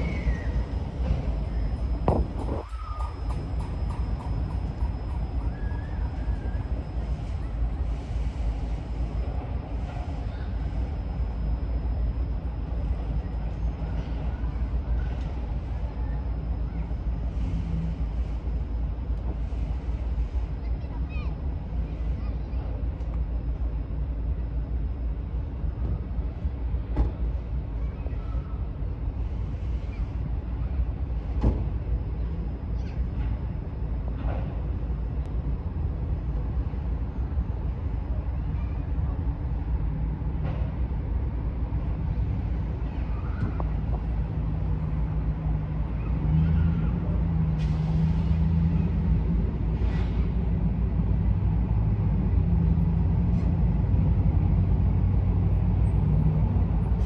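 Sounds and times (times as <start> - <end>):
diesel locomotive engine rumbling: 0.0 - 57.0.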